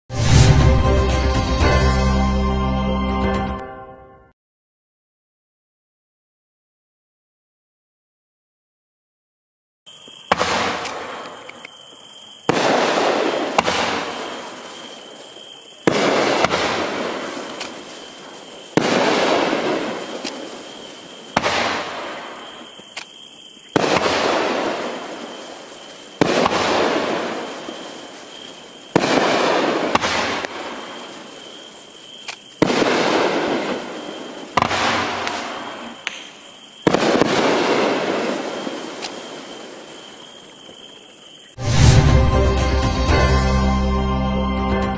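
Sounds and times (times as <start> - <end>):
firework crackle: 9.9 - 41.8
firework bangs: 9.9 - 41.9.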